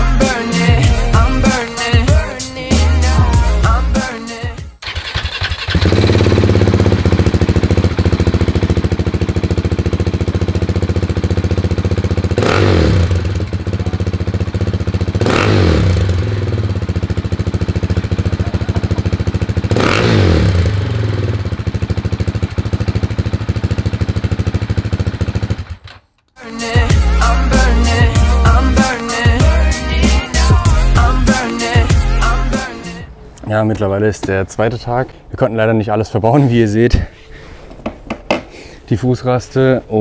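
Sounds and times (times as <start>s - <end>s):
motorcycle engine idling: 4.8s - 25.9s.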